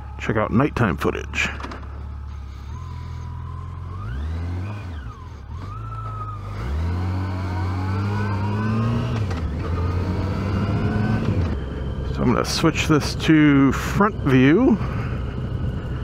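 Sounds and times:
motorcycle engine idling and revving: 0:00.0 - 0:16.0
motorcycle pulling away: 0:02.1 - 0:12.3.

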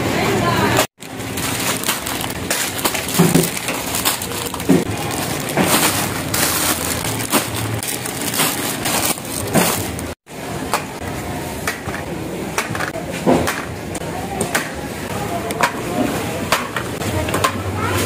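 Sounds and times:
supermarket background din: 0:00.0 - 0:18.0
goods clattering and packaging crinkling: 0:00.8 - 0:10.2.

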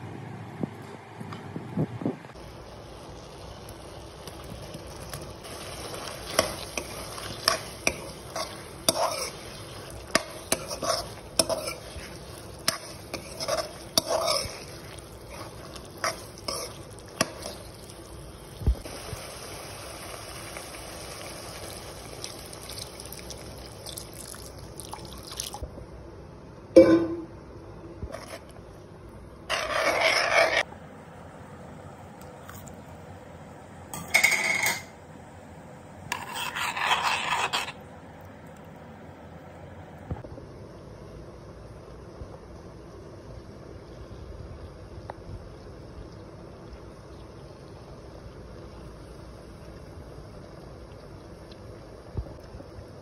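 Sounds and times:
potatoes sizzling in a pan: 0:02.4 - 0:25.2
spatula scraping a pan: 0:05.5 - 0:17.7, 0:28.1 - 0:28.5, 0:29.5 - 0:30.7, 0:36.1 - 0:37.8
liquid pouring into a pan: 0:18.9 - 0:25.6.

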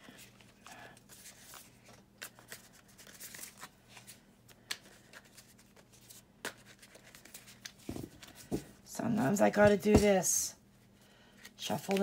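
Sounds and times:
cards being shuffled: 0:00.1 - 0:08.6, 0:11.4 - 0:12.0.

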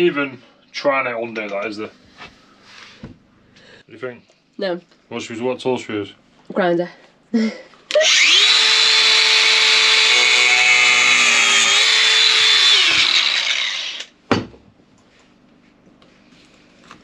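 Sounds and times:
angle grinder whining: 0:07.9 - 0:14.1.

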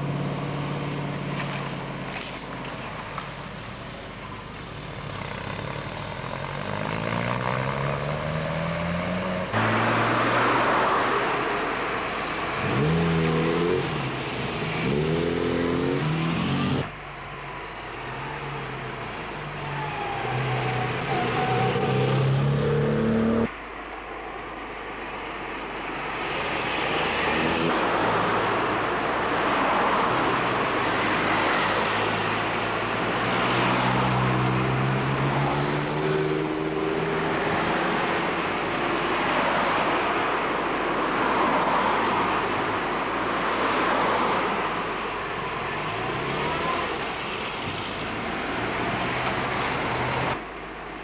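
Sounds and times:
car engine hum: 0:00.0 - 0:24.9
cars passing on road: 0:00.0 - 0:51.0.

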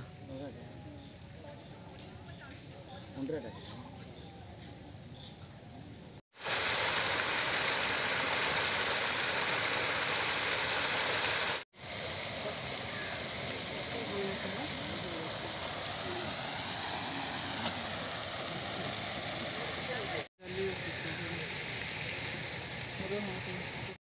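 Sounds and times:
steady rushing hiss: 0:06.2 - 0:24.0.

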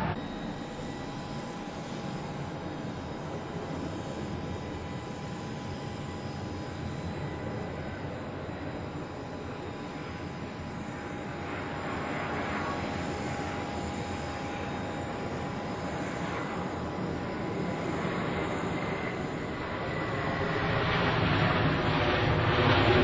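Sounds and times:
jet engines rushing: 0:00.0 - 0:00.6, 0:09.5 - 0:23.0.

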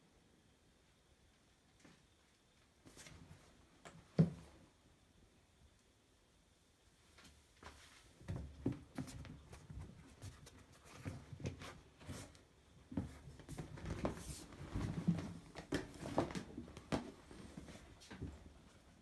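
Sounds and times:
rubber suit rustling and creaking: 0:10.1 - 0:18.9.

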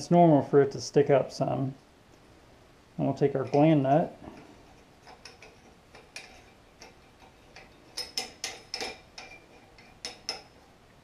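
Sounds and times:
metal parts clicking and tapping: 0:03.3 - 0:10.6.

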